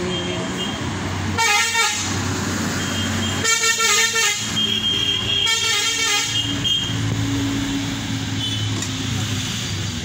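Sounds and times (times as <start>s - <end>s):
vehicle horn blasts: 3.0s - 6.9s.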